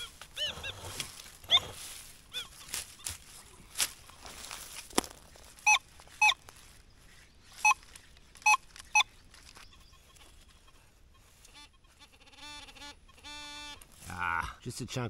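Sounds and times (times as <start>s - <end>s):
metal detector beeps: 5.6s - 6.4s, 7.6s - 9.9s.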